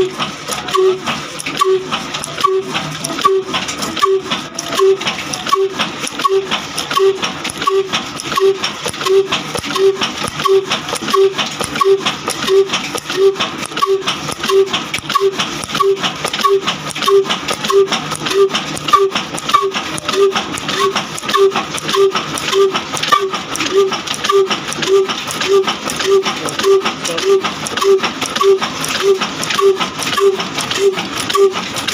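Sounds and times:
stationary diesel engine clattering: 0:00.0 - 0:31.9.

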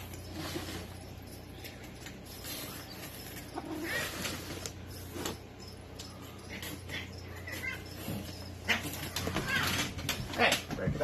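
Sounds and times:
cardboard scraping and creaking: 0:00.0 - 0:01.4, 0:02.3 - 0:05.8, 0:07.5 - 0:11.0
cat crying: 0:07.0 - 0:09.9.

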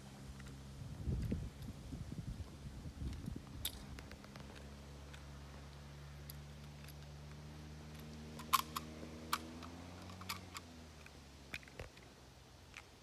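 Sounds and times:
rifle bolt metallic clicks: 0:06.2 - 0:12.1.

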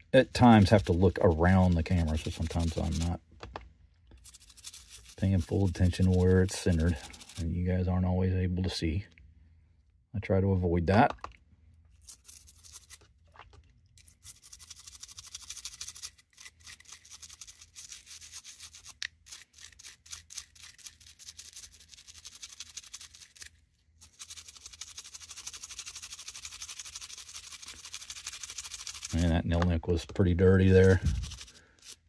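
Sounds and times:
toothbrush scrubbing in soapy water: 0:00.2 - 0:03.2, 0:04.2 - 0:07.5, 0:12.0 - 0:29.4, 0:30.5 - 0:32.0.

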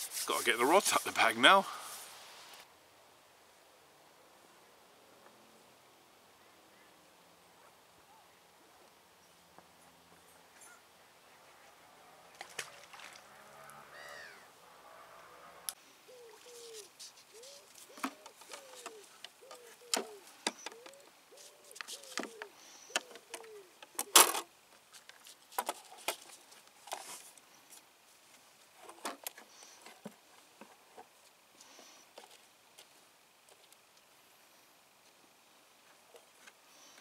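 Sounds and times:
bird cooing: 0:13.9 - 0:14.5, 0:16.0 - 0:24.3.

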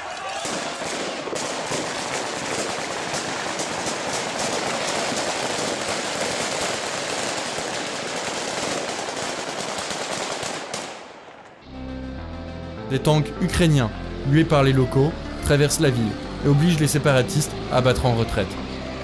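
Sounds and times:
heavy automatic gunfire: 0:00.4 - 0:11.2.

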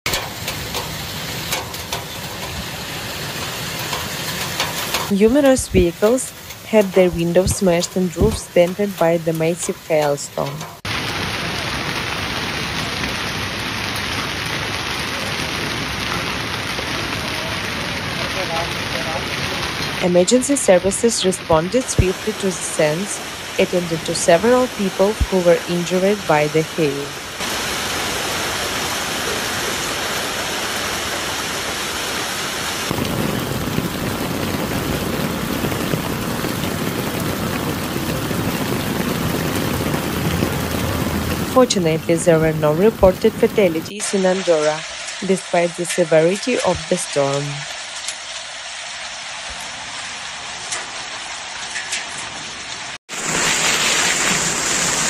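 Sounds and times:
hail and rain pelting pavement: 0:00.1 - 0:08.5, 0:10.5 - 0:20.0, 0:27.2 - 0:45.2, 0:47.6 - 0:55.0.

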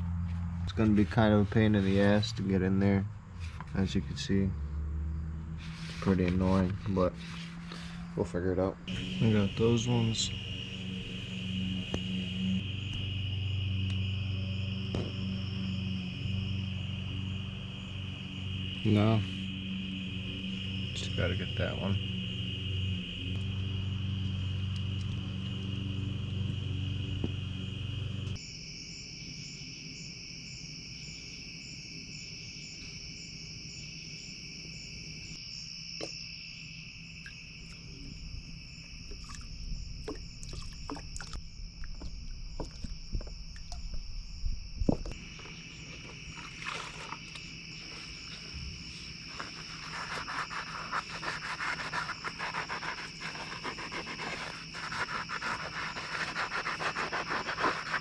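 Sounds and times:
crickets chirring: 0:00.0 - 0:58.0
sponge scrubbing engine case: 0:00.8 - 0:02.2, 0:45.5 - 0:58.0
low hum: 0:07.0 - 0:28.4.

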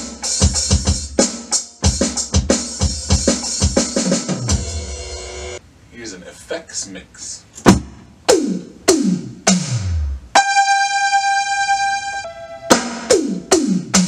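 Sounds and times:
electronic drum hits falling in pitch: 0:07.7 - 0:14.0
held synth note: 0:10.4 - 0:13.6.

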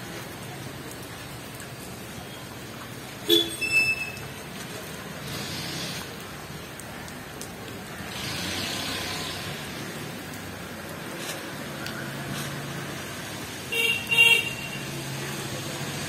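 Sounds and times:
distant road traffic: 0:00.0 - 0:16.0
light rain hiss: 0:00.0 - 0:16.0.

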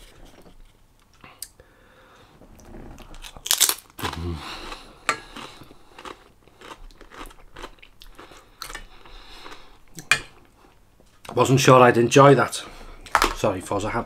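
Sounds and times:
person chewing food: 0:03.0 - 0:10.8.

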